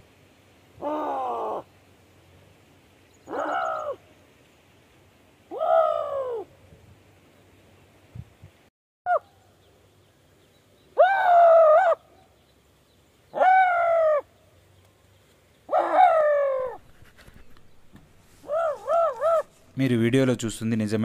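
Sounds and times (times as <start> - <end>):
shrill animal calls: 3.2 - 4.0, 5.5 - 6.5, 9.1 - 9.4, 11.0 - 12.2, 13.3 - 14.3, 15.7 - 16.9, 18.4 - 19.6.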